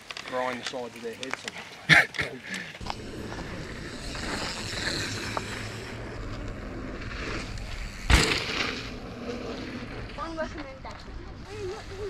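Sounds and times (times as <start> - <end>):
wind and tyre noise: 2.7 - 12.0
low hum: 2.8 - 12.0.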